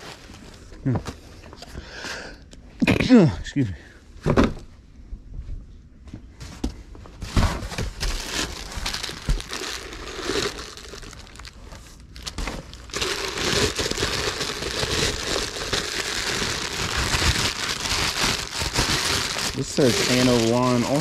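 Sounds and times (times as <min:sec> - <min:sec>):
plastic wrapping crinkling: 0:08.0 - 0:21.0.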